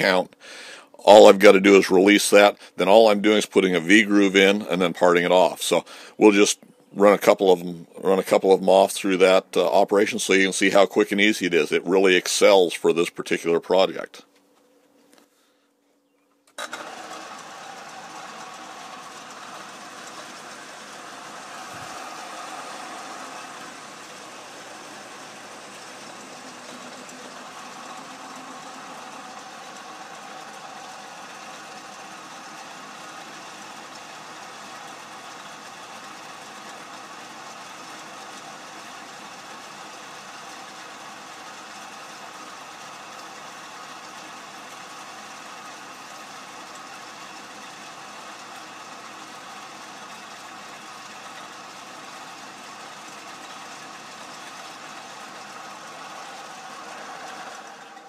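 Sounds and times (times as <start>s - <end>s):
lathe cutting steel: 16.6s - 58.0s.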